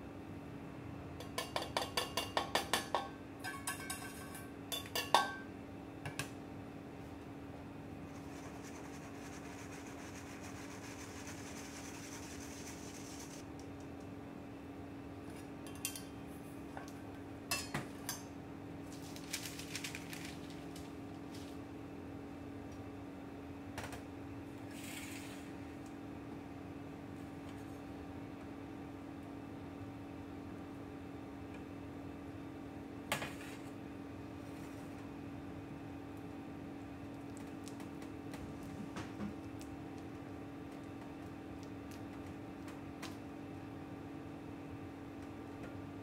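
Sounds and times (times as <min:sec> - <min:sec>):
faint steady hum: 0:00.0 - 0:46.0
whisk scratching through sieve: 0:08.0 - 0:13.5, 0:24.7 - 0:25.5.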